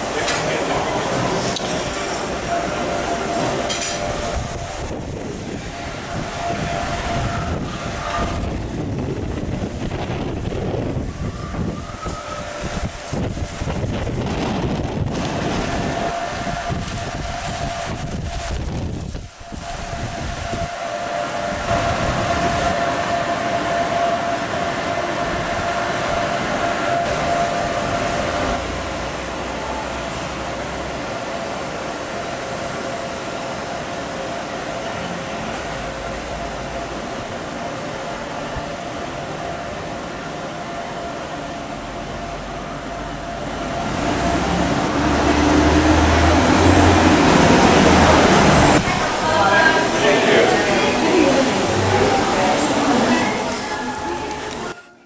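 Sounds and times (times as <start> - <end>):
heavy vehicle engine rumble: 0.0 - 33.1, 34.8 - 55.0
hot tub jets bubbling water: 12.1 - 54.7.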